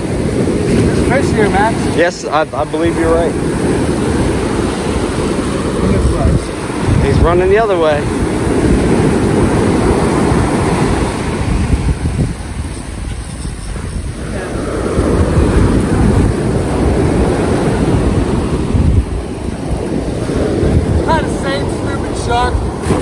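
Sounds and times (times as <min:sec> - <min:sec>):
ocean surf breaking: 0:00.0 - 0:23.0
wind rumbling on microphone: 0:00.0 - 0:23.0.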